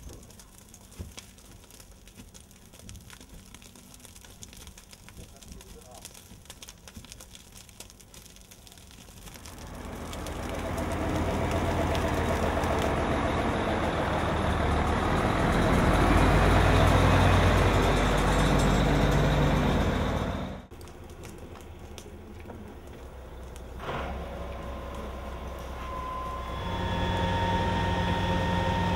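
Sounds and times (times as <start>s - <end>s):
fire engine driving past: 9.3s - 28.9s.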